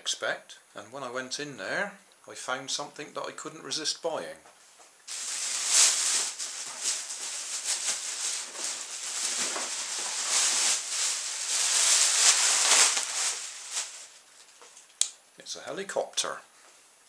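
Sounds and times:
plastic bag rustling: 5.1 - 14.9.

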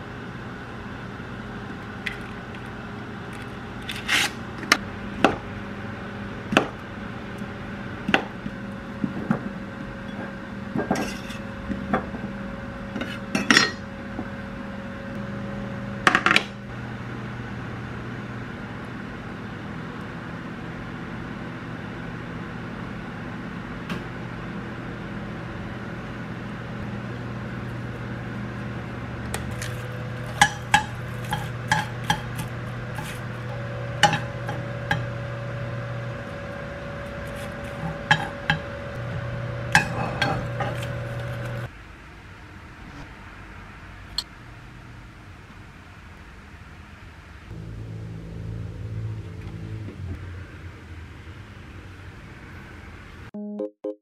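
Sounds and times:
low hum: 42.6 - 44.3, 47.4 - 52.4.

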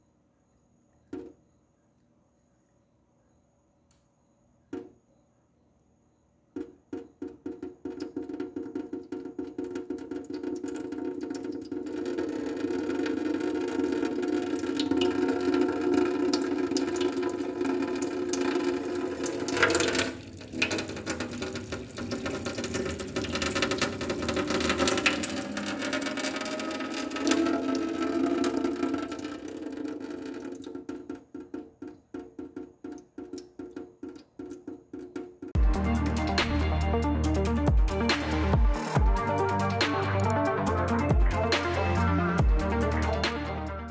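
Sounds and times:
water dripping into sink: 6.6 - 35.6.

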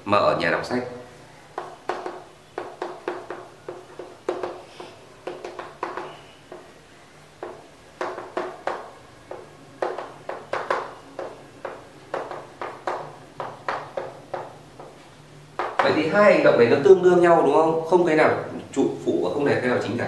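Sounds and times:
chalk tapping and scraping: 1.6 - 6.8, 7.4 - 16.0.

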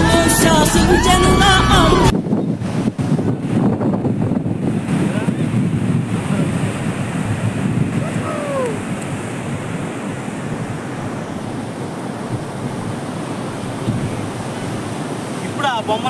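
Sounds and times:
short falling cry: 0.0 - 2.1, 8.0 - 9.0
flooded river rushing: 0.0 - 16.0
wind buffeting microphone: 0.9 - 16.0.

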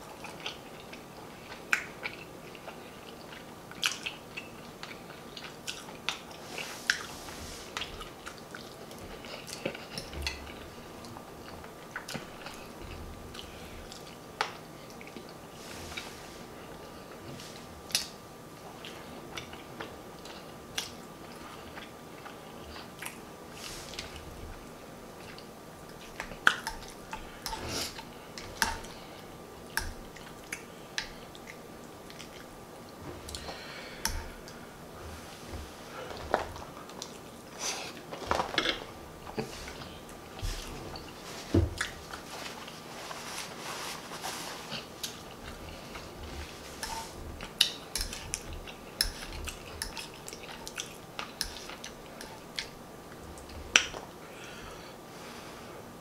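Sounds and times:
chewing and lip-smacking: 0.1 - 7.1, 7.8 - 15.4, 29.7 - 32.5, 46.8 - 54.0.

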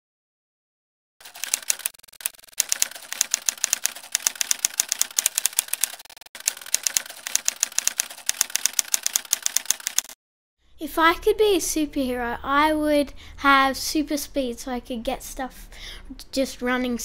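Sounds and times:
rapid keyboard typing: 1.2 - 10.2.

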